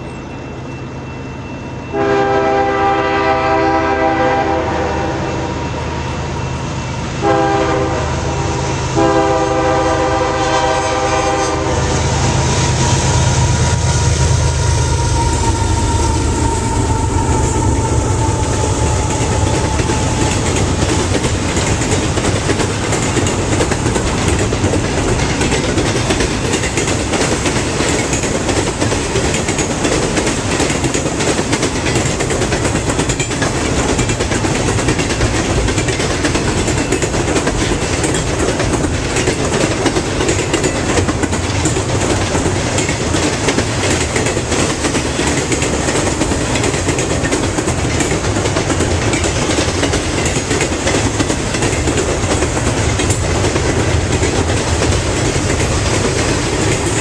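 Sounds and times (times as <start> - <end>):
locomotive horn blasts: 1.9 - 6.1, 7.2 - 12.4
locomotives rumbling past: 5.8 - 57.0
train wheels clattering on rails: 9.0 - 57.0.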